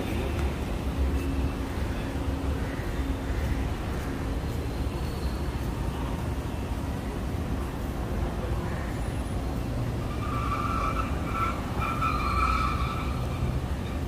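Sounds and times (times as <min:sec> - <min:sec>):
low traffic rumble: 0:00.0 - 0:14.0
high car squeal: 0:10.0 - 0:14.0.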